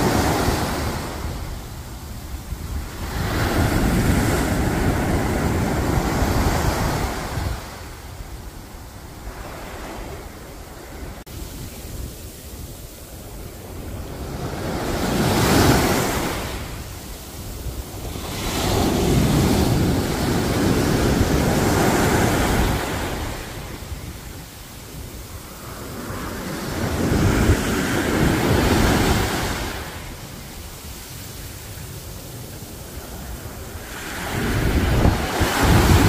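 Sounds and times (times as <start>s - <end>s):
waves washing over sand: 0.0s - 36.0s.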